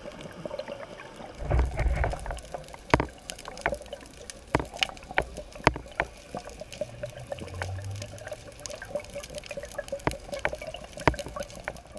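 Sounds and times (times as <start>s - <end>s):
underwater clicks and crackles: 0.0s - 11.9s.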